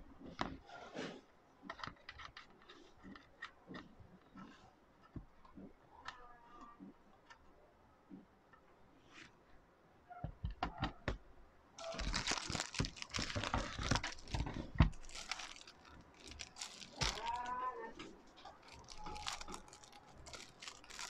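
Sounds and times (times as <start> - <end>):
plastic packaging crinkling: 11.8 - 21.0.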